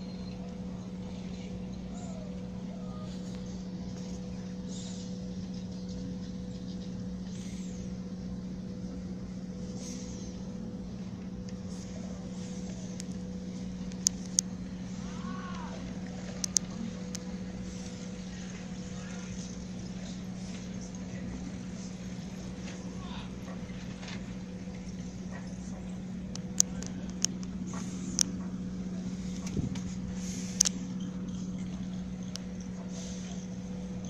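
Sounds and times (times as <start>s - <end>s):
low machine hum: 0.0s - 34.0s.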